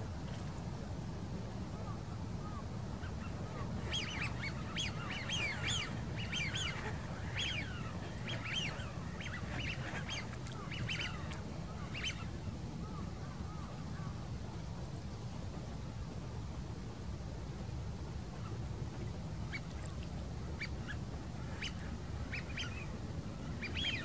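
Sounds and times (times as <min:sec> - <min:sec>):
steady low rumble: 0:00.0 - 0:24.0
waterfowl calling: 0:02.4 - 0:14.1, 0:20.5 - 0:24.0.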